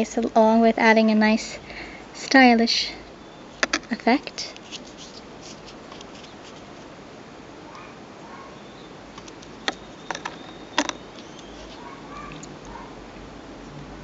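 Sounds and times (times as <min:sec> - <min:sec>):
steady low hiss: 0:00.0 - 0:14.0
beads and wire clicking: 0:09.2 - 0:12.8.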